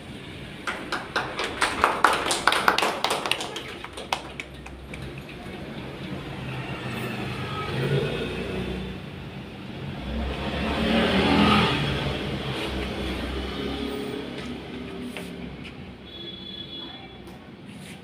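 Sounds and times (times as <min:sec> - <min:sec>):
people clapping: 0:00.5 - 0:06.0.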